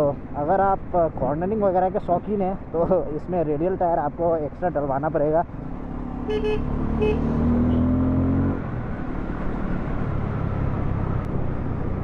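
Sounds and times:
wind and road noise: 0:00.0 - 0:12.0
horn beeps: 0:06.3 - 0:07.9.

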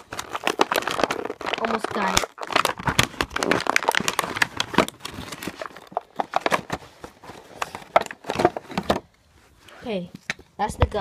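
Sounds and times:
stiff plastic packaging crackling: 0:00.0 - 0:09.2.

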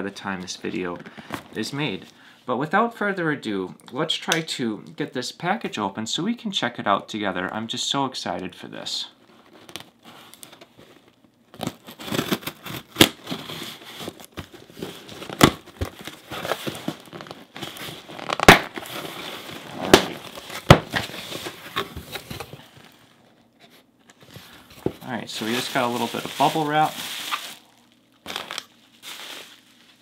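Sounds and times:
packaging crinkling and tearing: 0:09.5 - 0:23.0, 0:24.2 - 0:30.0.

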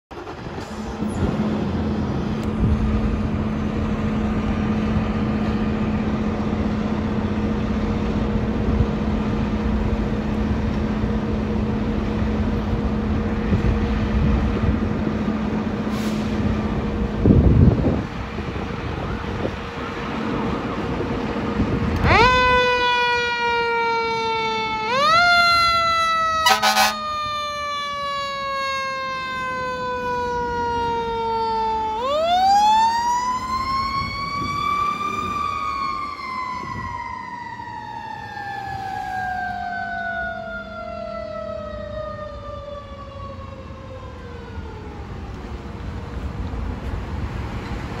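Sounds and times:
truck engine rumble: 0:00.1 - 0:48.0
short horn blast: 0:26.4 - 0:27.0.

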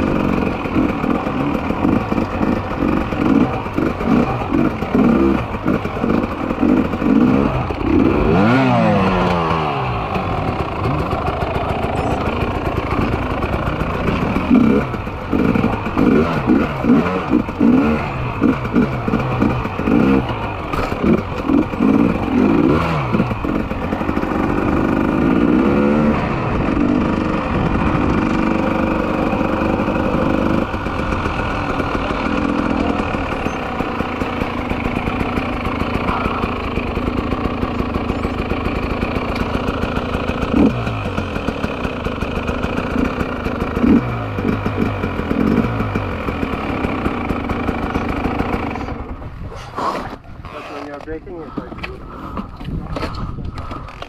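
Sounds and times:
motorcycle engine revving: 0:00.0 - 0:54.0
wind on microphone: 0:52.5 - 0:53.9.

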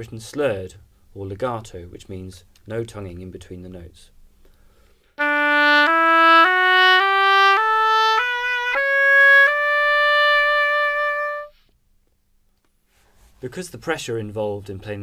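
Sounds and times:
oboe playing rising scale: 0:05.2 - 0:11.6.

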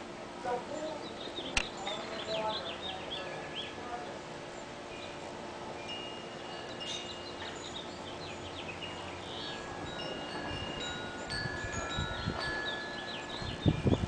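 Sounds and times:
wind chimes ringing: 0:04.9 - 0:14.0.

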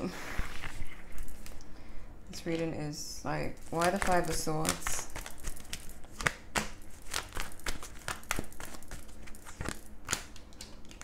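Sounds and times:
cards snapping and rustling: 0:03.6 - 0:11.0.

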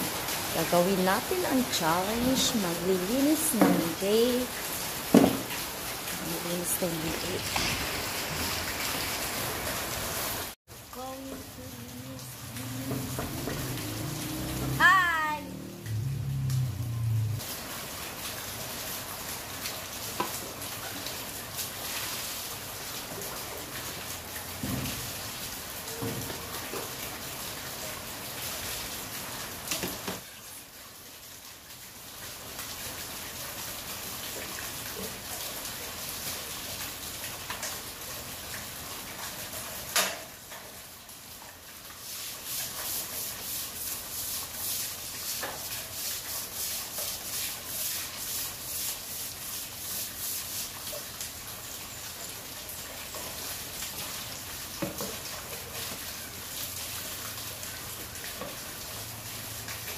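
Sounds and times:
heavy rain on paving: 0:00.0 - 0:59.9
rain splashing into water tub: 0:00.0 - 0:59.9
broom scrubbing wet floor: 0:11.6 - 0:17.6, 0:41.9 - 0:51.2.

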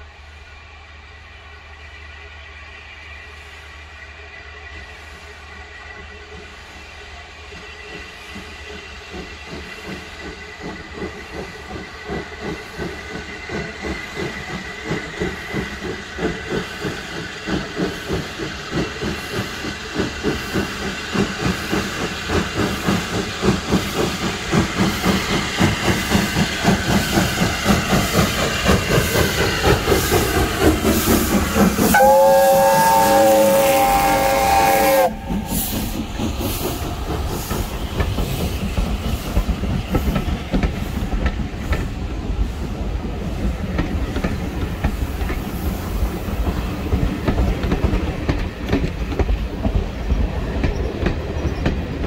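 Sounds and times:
steam locomotive exhaust beats: 0:00.0 - 0:52.0
steam whistle: 0:31.8 - 0:35.8.

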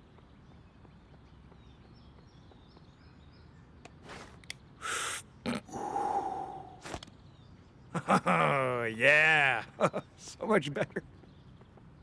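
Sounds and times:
breathy vapour hisses: 0:04.8 - 0:06.8.

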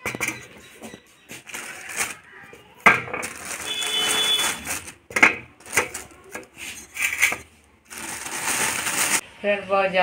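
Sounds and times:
plastic bag crinkling: 0:01.4 - 0:09.2.

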